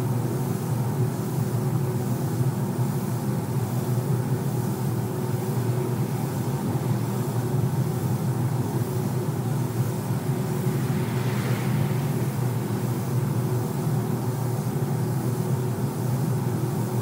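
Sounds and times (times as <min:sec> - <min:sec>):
ventilation drone: 0:00.0 - 0:17.0
spray gun hissing: 0:09.6 - 0:13.9.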